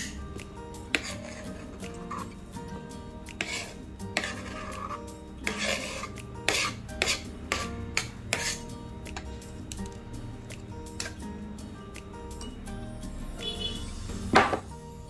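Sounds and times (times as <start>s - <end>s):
background music with held notes: 0.0s - 15.0s
kitchen utensils scraping and knocking: 0.9s - 2.4s, 3.4s - 8.7s.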